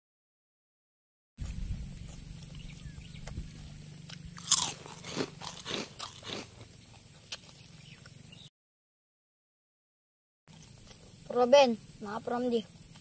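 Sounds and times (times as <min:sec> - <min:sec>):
crunchy chewing: 0:01.4 - 0:08.4, 0:10.5 - 0:11.3.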